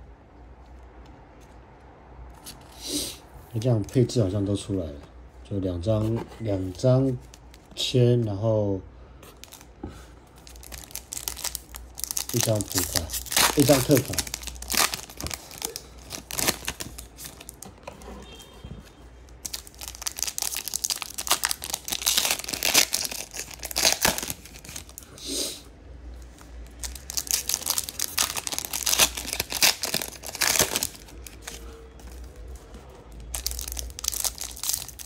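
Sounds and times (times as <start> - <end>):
foil wrappers crinkling and tearing: 10.4 - 17.6, 19.4 - 25.1, 26.8 - 35.0.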